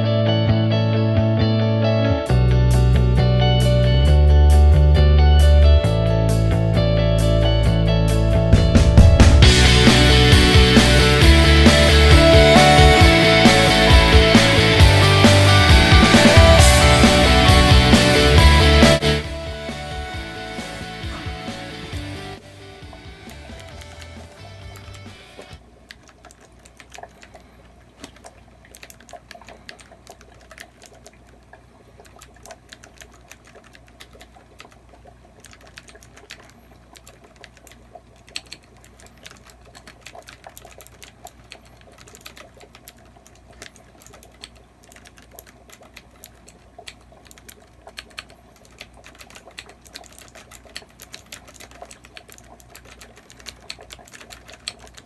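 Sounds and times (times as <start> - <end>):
keyboard typing clicks: 22.8 - 55.0.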